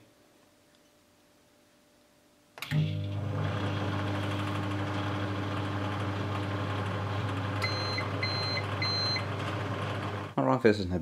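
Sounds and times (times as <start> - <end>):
microwave oven humming: 2.6 - 10.4.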